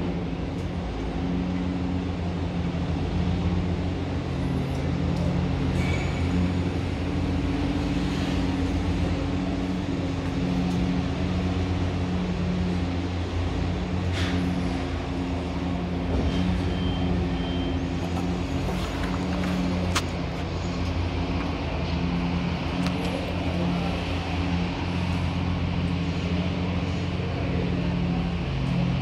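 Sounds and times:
engine running steadily: 0:00.0 - 0:29.0
faint short beeps: 0:16.2 - 0:17.9.

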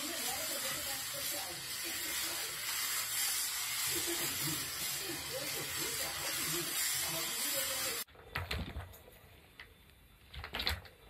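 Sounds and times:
steady hiss: 0:00.0 - 0:08.1.

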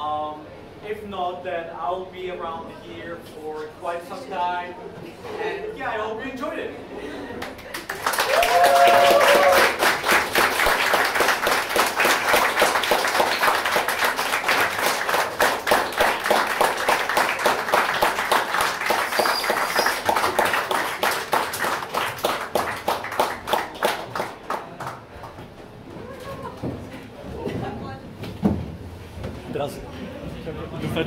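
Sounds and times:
audience applauding: 0:07.4 - 0:25.4.

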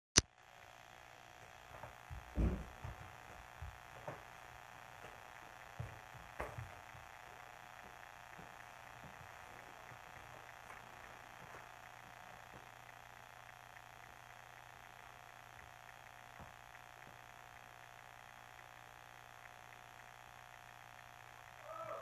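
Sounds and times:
faint room hum: 0:00.2 - 0:22.0
soft low thumps and knocks: 0:02.1 - 0:03.9.

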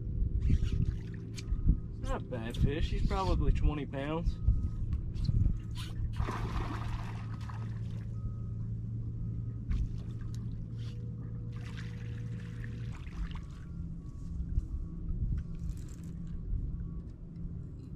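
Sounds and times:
steady low hum: 0:00.0 - 0:17.9
fish splashing at water surface: 0:06.2 - 0:08.0.

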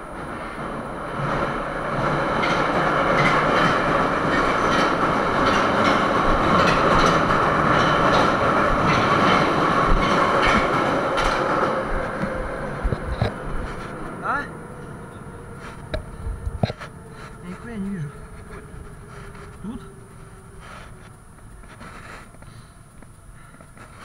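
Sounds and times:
train rumbling in tunnel: 0:00.0 - 0:24.0
wheels clacking over rail joints: 0:00.2 - 0:17.7.

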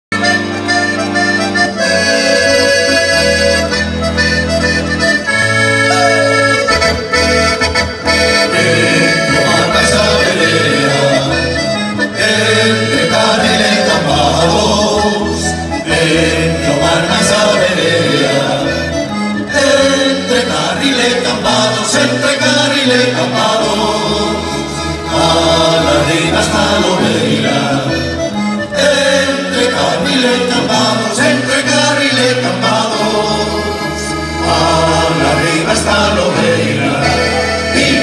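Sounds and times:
accordion playing folk tune: 0:00.1 - 0:38.0.

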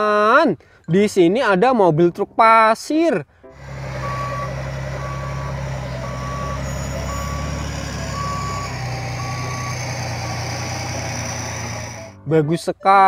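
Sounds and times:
diesel engine drone: 0:03.4 - 0:12.3
truck reversing alarm beeping: 0:03.6 - 0:12.3.

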